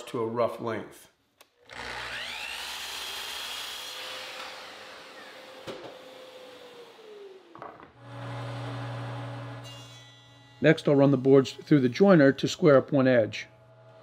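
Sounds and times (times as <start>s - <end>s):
miter saw cutting wood: 1.7s - 14.0s.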